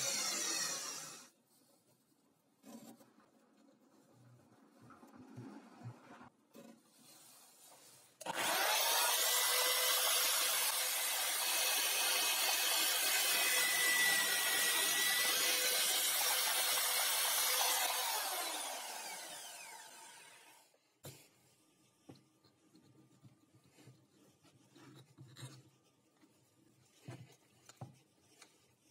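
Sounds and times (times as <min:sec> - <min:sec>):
drill spinning down whine: 0:00.0 - 0:01.3, 0:08.2 - 0:20.7
electric drill drilling into wood: 0:00.0 - 0:01.3, 0:08.2 - 0:20.7.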